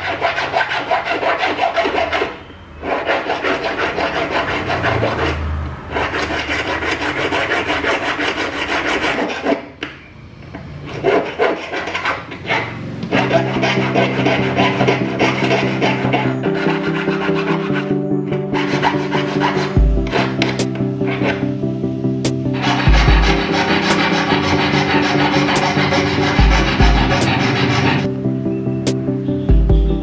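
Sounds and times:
saw rasping through wire: 0:00.0 - 0:05.3, 0:10.8 - 0:17.6, 0:22.6 - 0:28.1.

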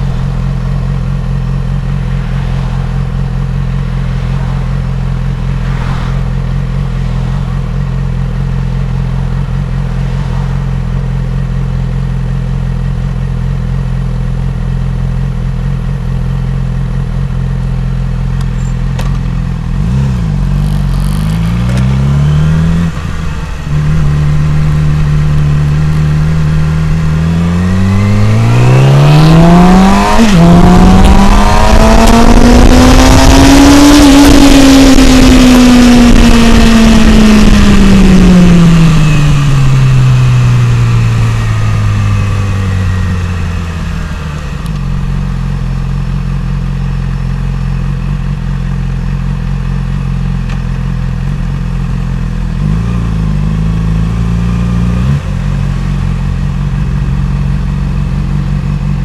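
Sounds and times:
motorcycle engine revving: 0:00.0 - 0:59.0
wind rushing: 0:01.8 - 0:08.2.

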